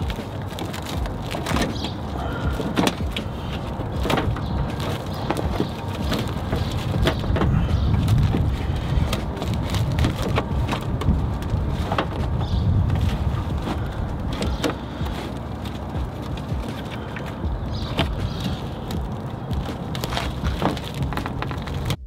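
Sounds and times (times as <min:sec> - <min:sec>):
plastic wrap crinkling: 0:00.0 - 0:22.0
steady low rumble: 0:00.0 - 0:22.0.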